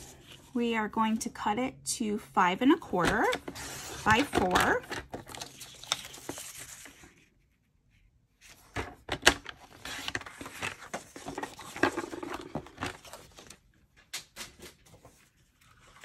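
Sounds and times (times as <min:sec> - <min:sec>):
paper rustling and sliding: 0:05.3 - 0:07.7, 0:08.4 - 0:13.6.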